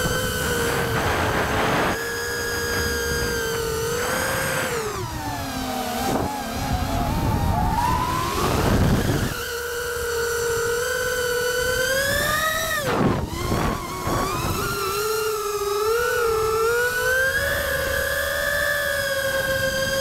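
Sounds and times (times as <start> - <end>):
drone motors whining: 0.0 - 20.0
wind rush on microphone: 0.0 - 20.0.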